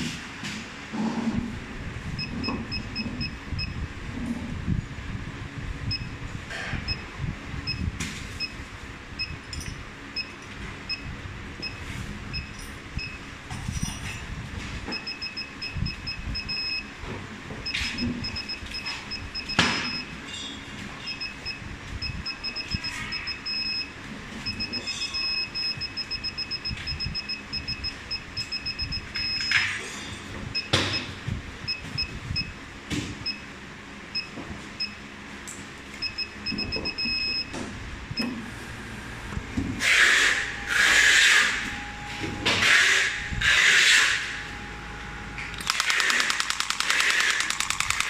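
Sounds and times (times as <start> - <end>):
pneumatic handpiece rapid clicks: 45.6 - 48.0.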